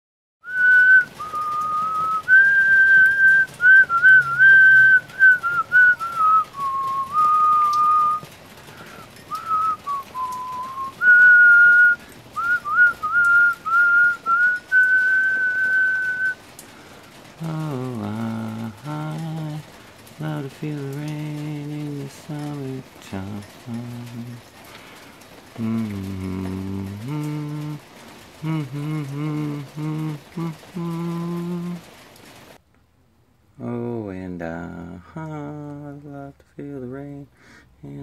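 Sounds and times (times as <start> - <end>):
person whistling a tune: 0.4 - 8.3, 9.0 - 16.4, 28.4 - 31.8.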